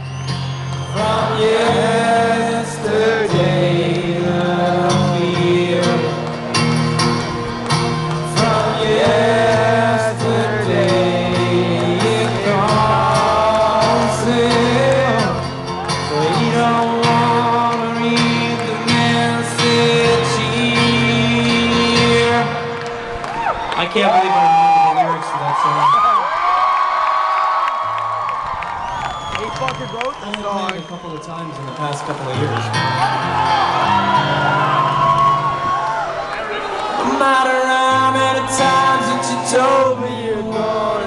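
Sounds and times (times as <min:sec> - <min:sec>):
acoustic guitar strumming chords: 0:00.0 - 0:23.4, 0:37.0 - 0:41.0.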